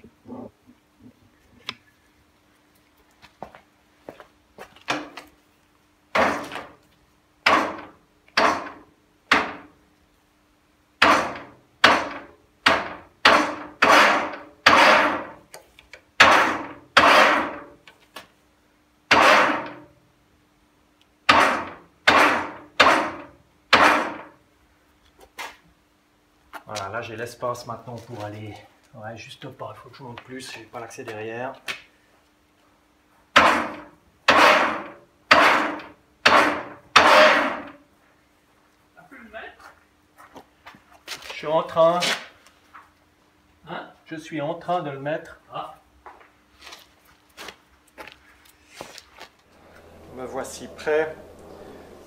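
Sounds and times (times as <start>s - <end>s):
faint steady hum: 49.4s - 52.0s.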